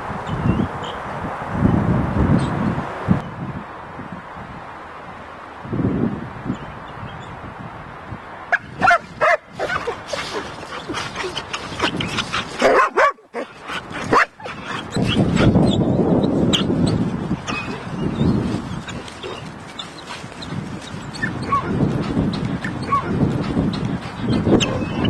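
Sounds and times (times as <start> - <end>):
dogs barking and whimpering: 8.6 - 25.0.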